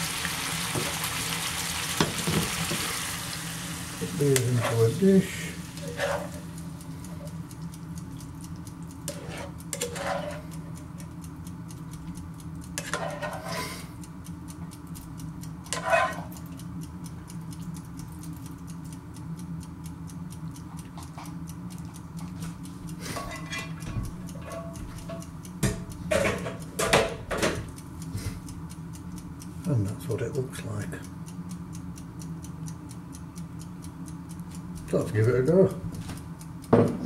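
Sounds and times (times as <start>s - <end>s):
clock ticking: 4.1s - 13.4s, 14.0s - 37.0s
frying pan and utensil clinking: 5.8s - 6.4s, 9.1s - 10.5s, 12.8s - 13.8s, 15.8s - 16.3s, 23.1s - 27.7s.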